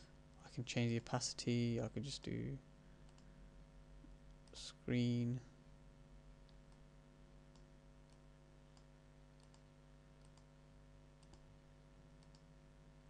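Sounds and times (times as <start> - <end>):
computer mouse clicks: 3.0 - 3.3, 7.5 - 10.5, 11.2 - 11.5, 12.1 - 12.5.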